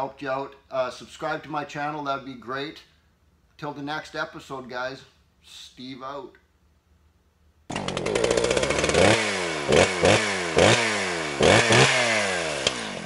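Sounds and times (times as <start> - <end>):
engine revving: 7.7 - 13.0.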